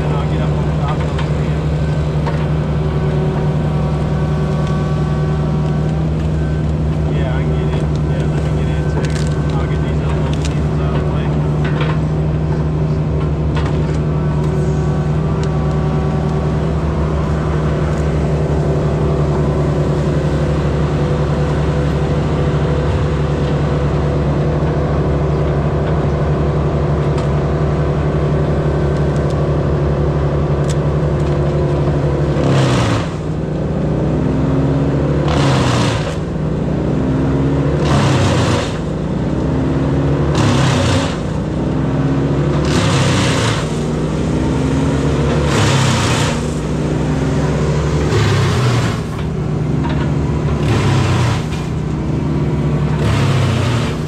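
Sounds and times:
large engine running: 0.0 - 54.0
loud rushing noise: 42.6 - 54.0.

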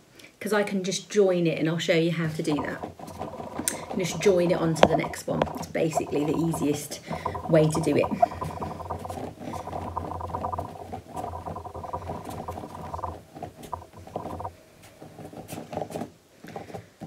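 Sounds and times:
clay rolling on wooden table: 2.3 - 14.5.

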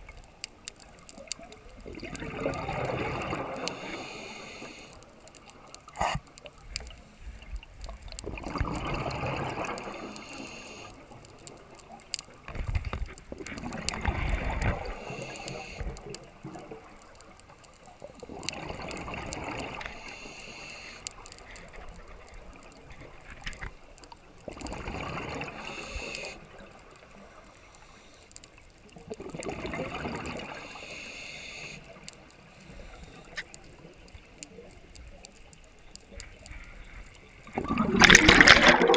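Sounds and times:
gurgling exhaled bubbles: 1.2 - 4.0, 7.9 - 10.2, 12.6 - 17.0, 18.1 - 19.9, 24.4 - 26.6, 29.0 - 30.6, 37.3 - 38.9
regulator hiss: 3.6 - 5.2, 9.9 - 11.1, 14.8 - 16.0, 19.8 - 21.6, 25.6 - 26.5, 30.5 - 33.4.

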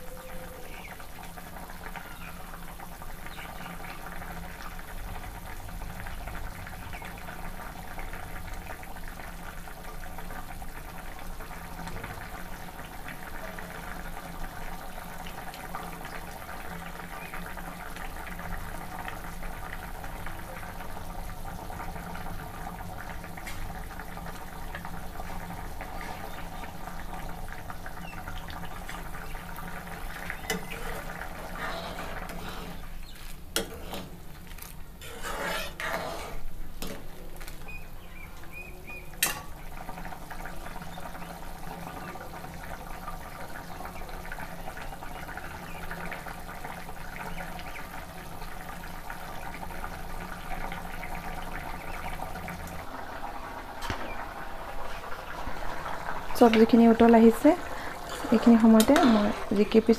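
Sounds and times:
curry bubbling in a pan: 0.0 - 59.9
spoon clinking and scraping pan: 30.4 - 32.8, 33.6 - 34.1, 35.0 - 37.0, 39.2 - 39.5, 58.0 - 59.8.

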